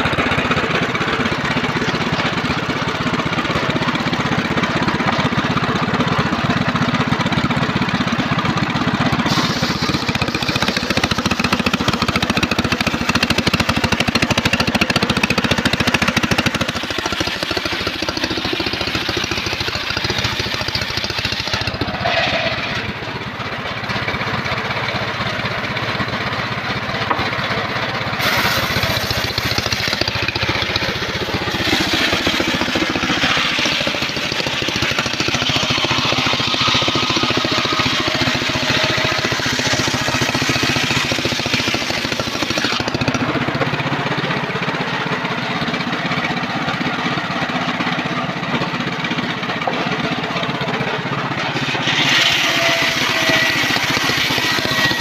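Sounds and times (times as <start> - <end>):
circular saw cutting log: 0.0 - 45.0, 49.4 - 55.0.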